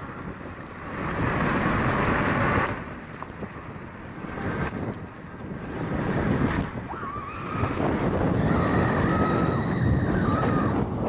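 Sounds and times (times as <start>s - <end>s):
tyre and road noise: 0.0s - 11.0s
wind buffeting microphone: 0.0s - 11.0s
light clicks and rattles: 0.5s - 6.8s.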